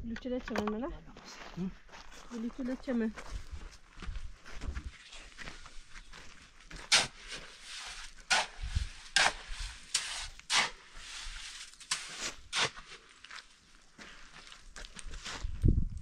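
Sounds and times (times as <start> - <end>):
spade scraping metal wheelbarrow: 6.8 - 13.1.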